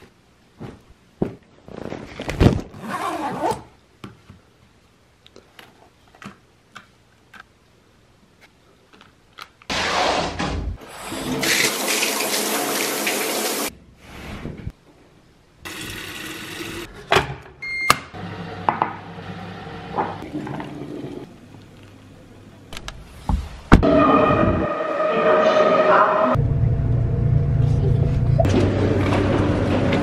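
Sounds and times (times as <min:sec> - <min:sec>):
water running: 0:10.9 - 0:13.7, 0:15.7 - 0:16.9.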